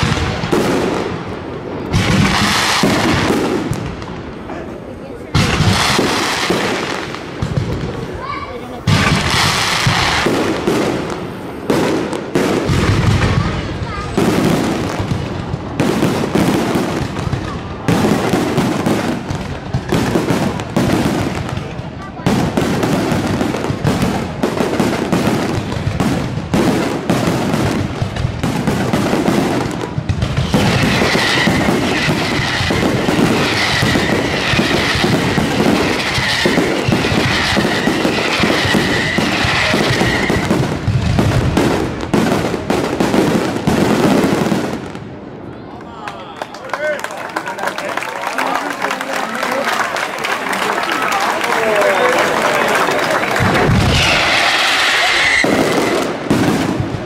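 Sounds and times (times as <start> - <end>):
firework crackling: 0.0 - 45.6, 46.8 - 57.0
firework shells bursting: 26.2 - 42.5, 52.2 - 56.9.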